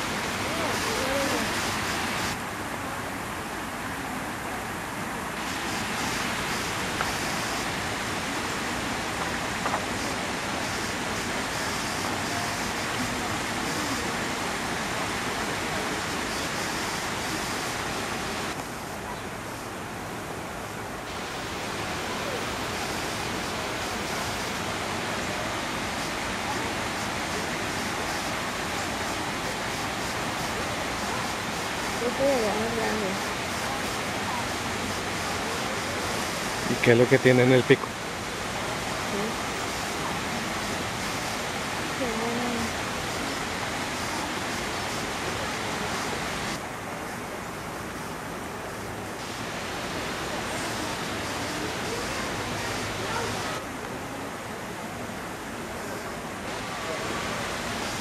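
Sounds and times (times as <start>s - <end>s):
steady rushing noise: 0.0s - 58.0s
faint distant voices: 21.1s - 58.0s.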